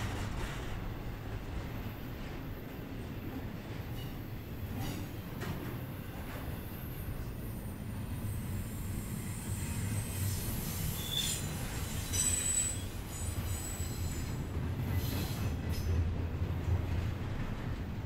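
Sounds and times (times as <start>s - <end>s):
train wheels rumbling on rail: 0.0s - 18.0s
high-pitched wheel squeals: 9.4s - 14.3s.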